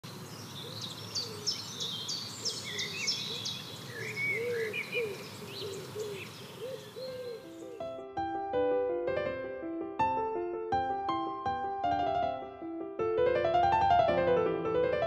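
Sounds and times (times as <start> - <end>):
birds chirping: 0.0 - 8.0
short low bird calls: 0.1 - 7.8.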